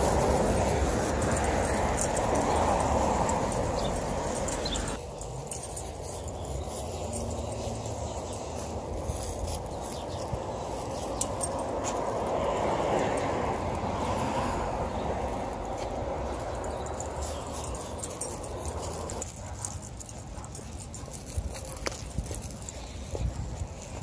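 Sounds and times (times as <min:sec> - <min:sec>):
footsteps on dry leaves: 0:00.0 - 0:24.0
wind rumble on microphone: 0:20.9 - 0:24.0.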